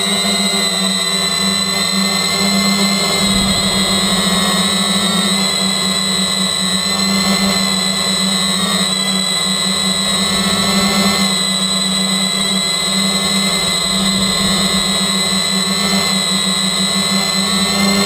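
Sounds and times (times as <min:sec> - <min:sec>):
drone motors whining: 0:03.0 - 0:06.0.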